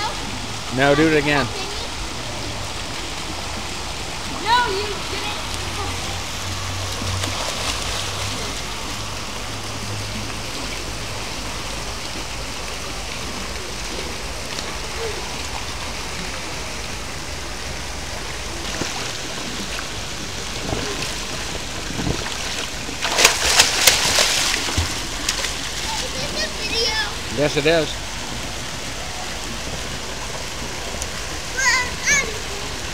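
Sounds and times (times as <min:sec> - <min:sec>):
fountain jets splashing into pool: 0:00.0 - 0:32.9
child thrashing in water: 0:20.2 - 0:26.7.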